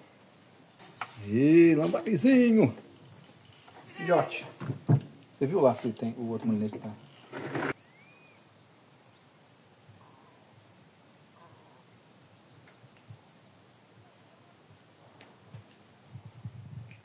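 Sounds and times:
high-pitched insect trilling: 0:00.0 - 0:05.7, 0:06.5 - 0:11.2, 0:11.8 - 0:17.0
rising-and-falling whistle: 0:07.8 - 0:08.4.

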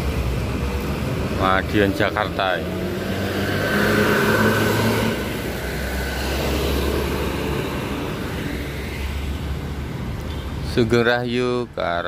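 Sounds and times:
truck driving past: 0:00.0 - 0:10.2
bus passing at speed: 0:00.0 - 0:10.8.

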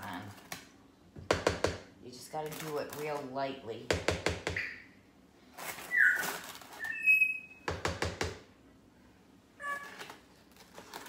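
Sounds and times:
bird whistling and chirping: 0:05.8 - 0:07.6.

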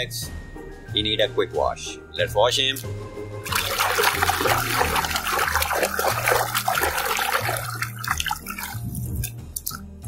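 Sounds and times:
hand splashing water in a tub: 0:03.4 - 0:09.3.

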